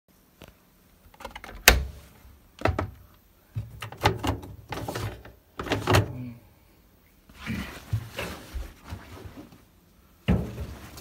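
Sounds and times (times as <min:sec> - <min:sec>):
plastic knocks and rattles: 0:02.6 - 0:03.0.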